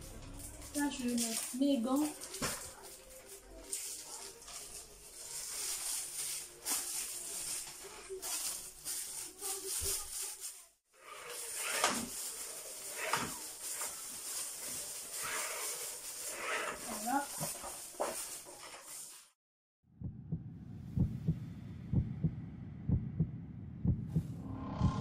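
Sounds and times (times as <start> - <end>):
plastic gloves crinkling: 0.0 - 19.4.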